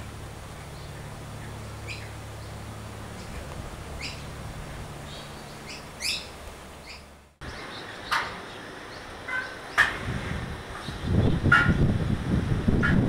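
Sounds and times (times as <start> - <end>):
small birds chirping: 0.5 - 4.4, 5.0 - 9.9, 10.7 - 11.8.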